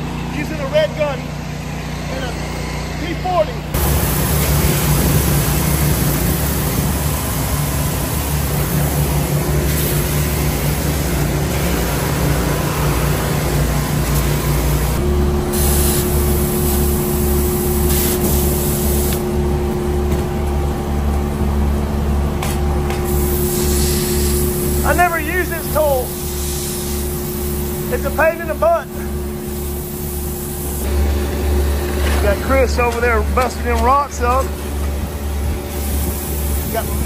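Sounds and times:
pressure washer engine: 0:00.0 - 0:37.0
steady hum: 0:00.0 - 0:37.0
spray hissing on wet concrete: 0:03.8 - 0:10.8, 0:15.5 - 0:19.2, 0:23.1 - 0:28.1, 0:29.5 - 0:30.9, 0:35.7 - 0:37.0.

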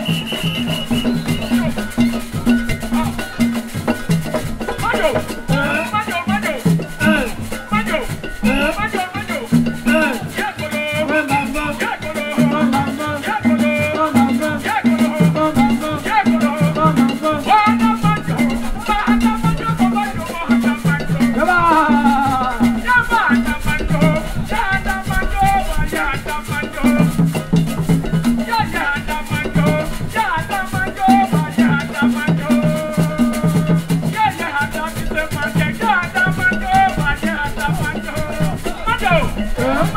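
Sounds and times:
hand drums beating: 0:00.0 - 0:39.9
shaken rattles: 0:00.0 - 0:39.9
voices singing: 0:00.0 - 0:39.9.

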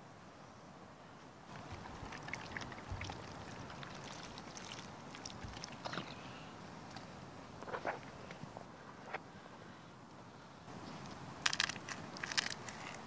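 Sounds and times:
campfire crackling: 0:01.5 - 0:06.2.

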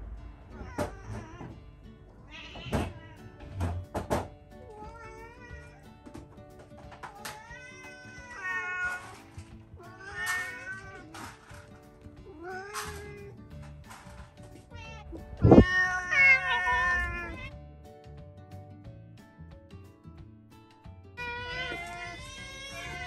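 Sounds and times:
background music: 0:00.0 - 0:23.0
cats meowing: 0:00.5 - 0:03.8, 0:04.6 - 0:06.2, 0:06.8 - 0:13.4, 0:14.5 - 0:17.5, 0:21.2 - 0:23.0.

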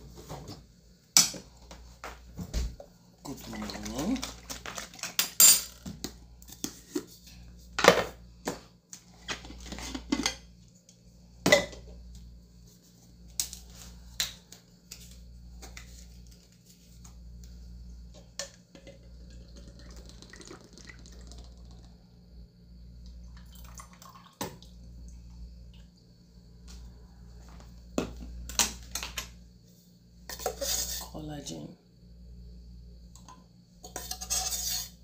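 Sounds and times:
drink poured into glass: 0:18.9 - 0:21.9, 0:23.4 - 0:24.4.

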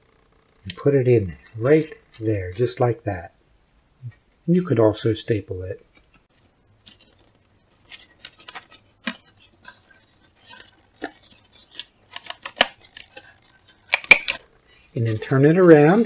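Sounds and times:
paper plates rustling: 0:06.3 - 0:14.4
sharp stapler click: 0:13.9 - 0:14.4
stapler clicks: 0:13.9 - 0:14.4.

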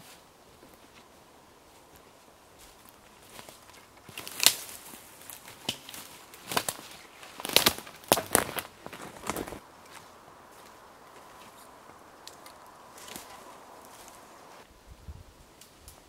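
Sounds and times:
twigs snapping underfoot: 0:02.6 - 0:14.6.

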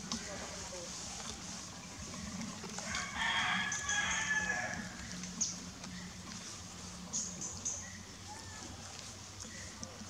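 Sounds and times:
rooster crowing: 0:02.9 - 0:04.9.

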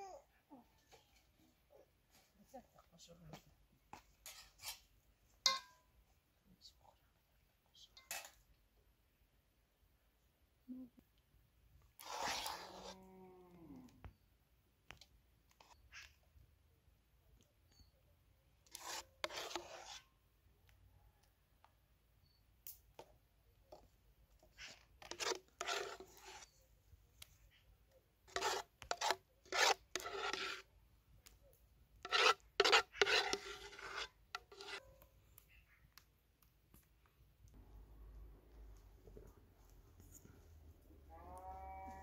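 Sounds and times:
metal spoon scraping a pot: 0:05.5 - 0:05.8, 0:12.0 - 0:13.0, 0:18.7 - 0:20.0, 0:24.6 - 0:26.6, 0:28.3 - 0:30.7, 0:32.0 - 0:34.9
spoon clinking on metal plates: 0:05.5 - 0:05.8.

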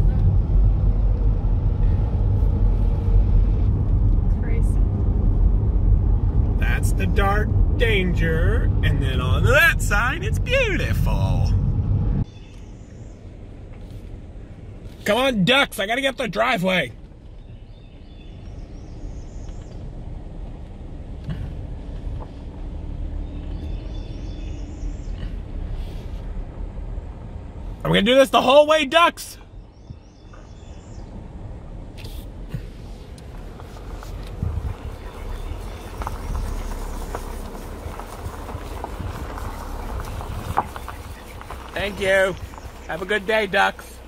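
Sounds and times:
car engine and tyre rumble: 0:00.0 - 0:44.0
birds chirping: 0:06.6 - 0:11.6, 0:12.2 - 0:13.8, 0:14.4 - 0:26.4, 0:27.2 - 0:31.3, 0:32.6 - 0:44.0
tyres crunching on gravel: 0:32.6 - 0:44.0.

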